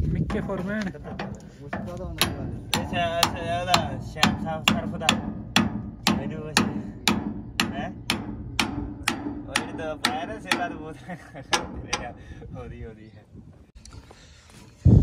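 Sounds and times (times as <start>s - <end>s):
hammer striking steel bar: 0.5s - 10.8s.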